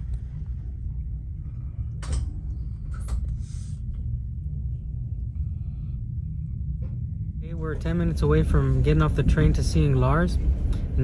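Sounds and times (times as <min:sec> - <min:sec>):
train rumbling inside carriage: 0:00.0 - 0:04.0, 0:06.6 - 0:11.0.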